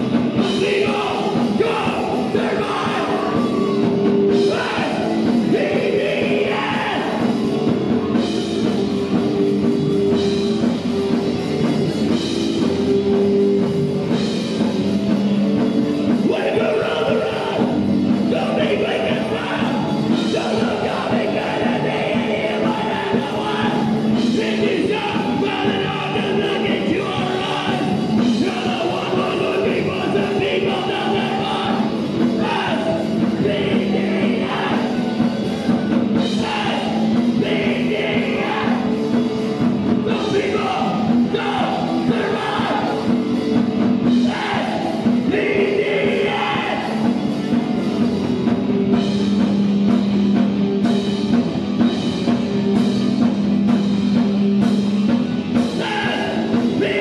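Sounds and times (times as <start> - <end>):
person singing lead vocal: 0.0 - 8.2, 16.1 - 47.7, 55.5 - 57.0
drums: 0.0 - 57.0
electric guitar: 0.0 - 57.0.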